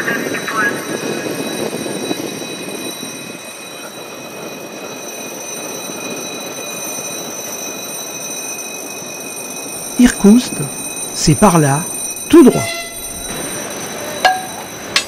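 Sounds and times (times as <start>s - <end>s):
train rolling on track: 0.0s - 15.0s
high-pitched tones: 9.8s - 14.7s.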